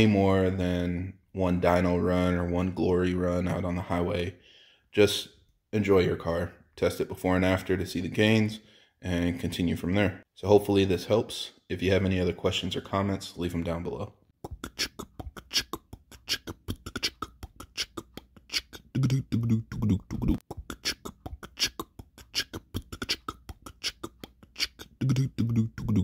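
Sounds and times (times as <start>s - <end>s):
beatboxing percussive beat: 14.3s - 26.0s
short pitched vocal phrases: 14.4s - 26.0s.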